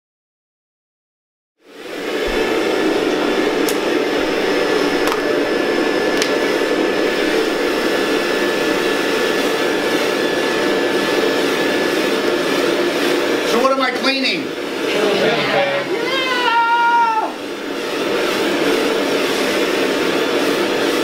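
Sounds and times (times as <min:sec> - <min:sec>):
vacuum cleaner running: 0:01.6 - 0:21.0.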